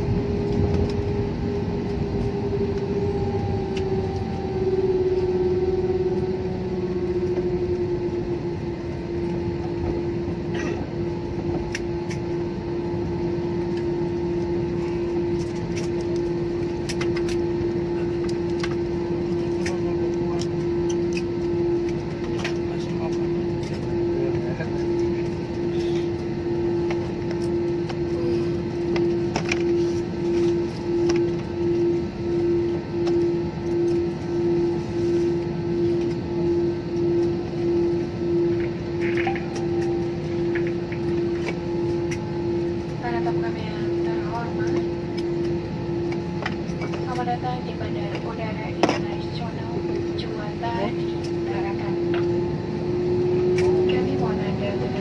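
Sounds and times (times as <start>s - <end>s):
airliner cabin rumble: 0.0s - 55.0s
humming tone: 0.0s - 55.0s
jet engine and airflow drone: 0.0s - 55.0s.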